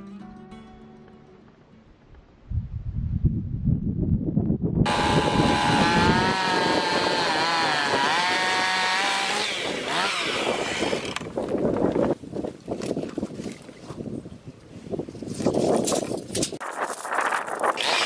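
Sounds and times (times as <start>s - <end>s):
chainsaw engine revving: 4.9s - 11.3s, 17.7s - 18.0s.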